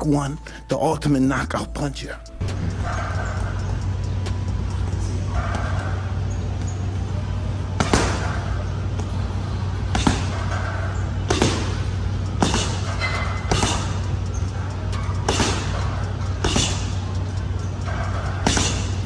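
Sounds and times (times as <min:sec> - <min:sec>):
gloves punching heavy bag: 0:07.7 - 0:17.0, 0:17.9 - 0:19.0.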